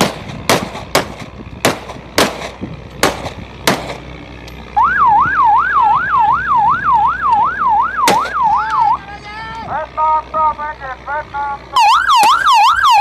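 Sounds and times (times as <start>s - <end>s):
rifle shots: 0.0s - 4.0s
siren yelping: 4.8s - 9.6s, 11.7s - 13.0s.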